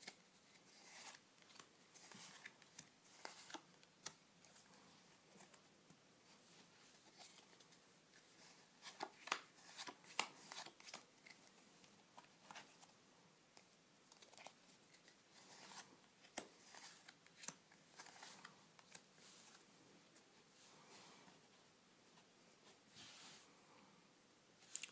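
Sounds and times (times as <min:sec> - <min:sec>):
playing cards snapping and slapping: 0:09.0 - 0:11.0.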